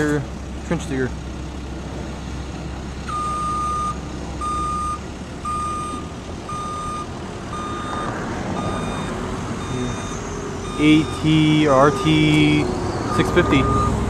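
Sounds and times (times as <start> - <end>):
diesel engine drone: 0.0 - 14.0
backup alarm beeping: 3.1 - 14.0.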